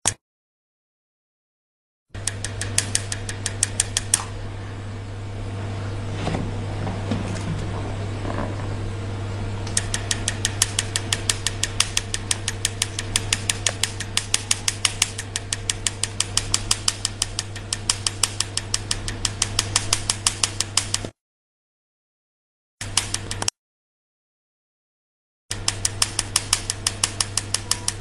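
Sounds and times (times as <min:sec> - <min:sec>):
machine low hum: 0:02.2 - 0:21.1, 0:22.8 - 0:23.5, 0:25.5 - 0:28.0
laser firing sharp snaps: 0:09.7 - 0:21.1, 0:25.5 - 0:28.0.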